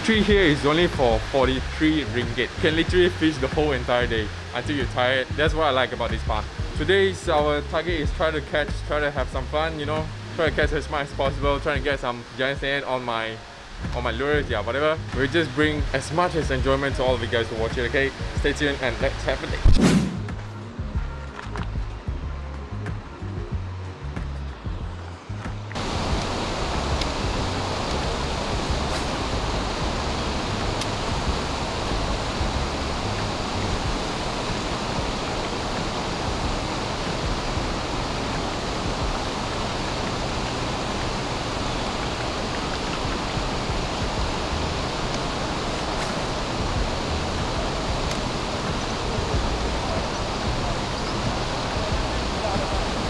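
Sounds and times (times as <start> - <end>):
wind buffeting microphone: 25.8 - 53.0.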